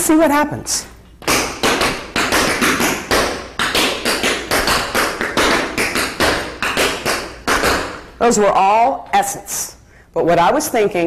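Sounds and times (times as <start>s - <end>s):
tap shoes on wooden floor: 1.2s - 8.1s.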